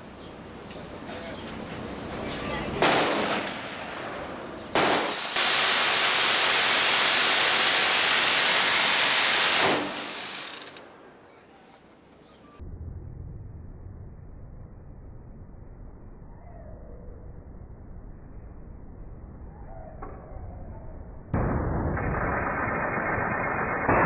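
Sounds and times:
minigun firing: 4.8 - 10.9, 21.4 - 24.0.

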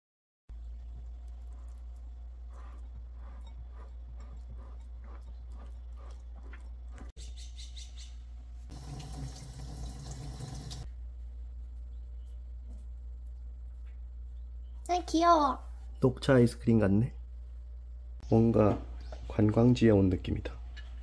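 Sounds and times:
kitchen tap running: 8.7 - 10.9.

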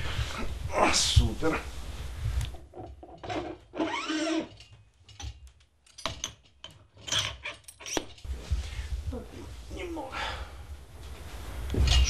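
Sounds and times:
metal barbell collar clicks and scrapes: 3.2 - 8.3.

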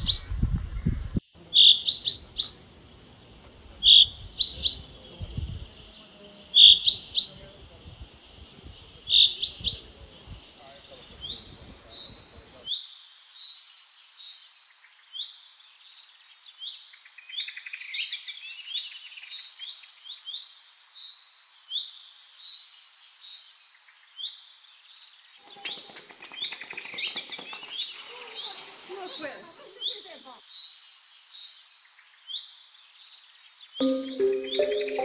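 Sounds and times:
songbirds chirping and trilling: 1.4 - 35.0
low background noise: 29.3 - 35.0.

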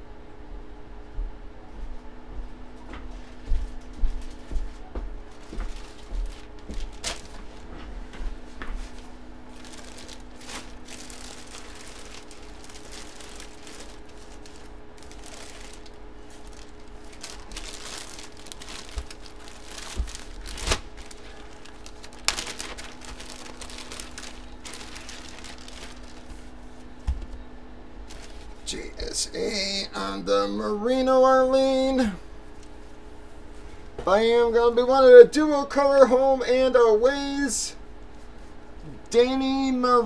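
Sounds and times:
low hum: 1.4 - 33.9
plastic packaging crinkling: 5.2 - 27.0, 28.0 - 29.1.

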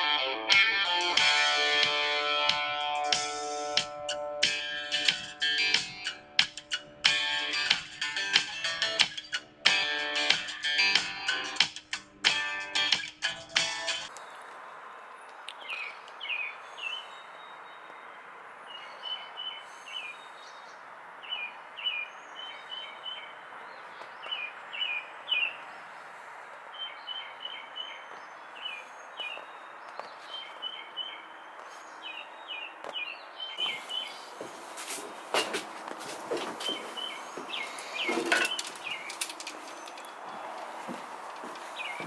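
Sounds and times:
small songbird chirping: 14.1 - 34.4, 36.7 - 40.8, 41.6 - 42.0
footsteps on wooden deck: 28.0 - 42.0.

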